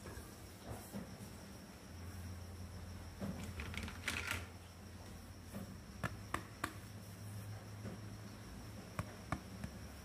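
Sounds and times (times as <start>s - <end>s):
steady low hum: 0.0s - 10.0s
plastic toy pieces clicking: 3.5s - 4.5s.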